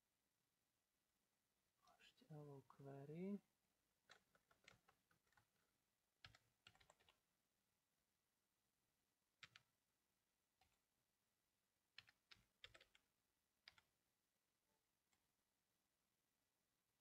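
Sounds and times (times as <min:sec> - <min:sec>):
faint keyboard keystrokes: 0:04.0 - 0:07.2, 0:12.0 - 0:13.9.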